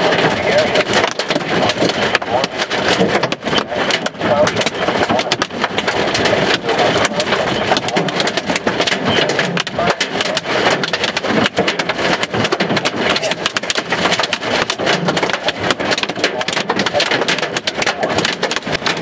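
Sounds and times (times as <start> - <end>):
heavy hail clattering: 0.0 - 19.0
steady rushing noise: 0.0 - 19.0.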